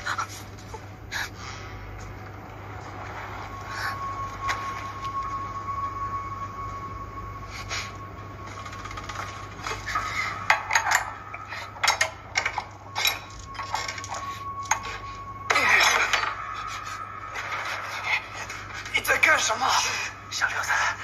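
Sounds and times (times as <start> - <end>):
faint high whine: 0.0 - 21.0
metallic clinks and knocks: 8.5 - 19.0.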